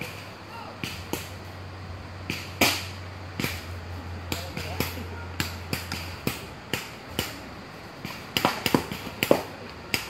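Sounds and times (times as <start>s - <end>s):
paintball markers firing: 8.0s - 10.0s.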